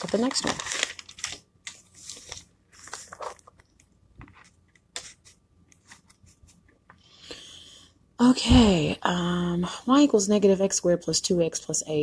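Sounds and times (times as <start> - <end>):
paper sheets rustling: 0.0 - 6.6.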